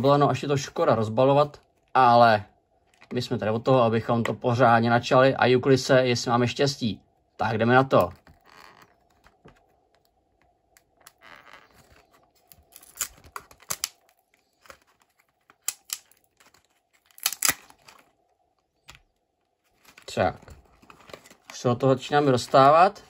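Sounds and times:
packaging clicking and crackling: 8.0 - 21.7.

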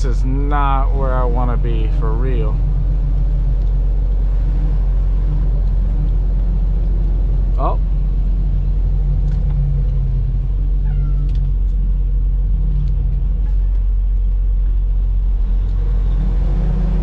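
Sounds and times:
diesel truck engine drone: 0.0 - 17.0.

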